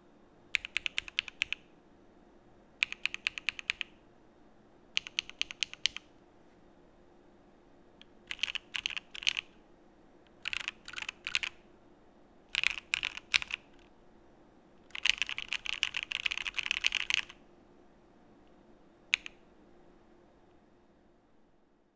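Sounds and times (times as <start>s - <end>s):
mechanical keyboard typing: 0.5s - 1.6s, 2.8s - 3.9s, 5.0s - 6.1s, 8.2s - 9.5s, 10.3s - 11.6s, 12.5s - 13.8s, 14.9s - 17.4s, 19.1s - 19.4s.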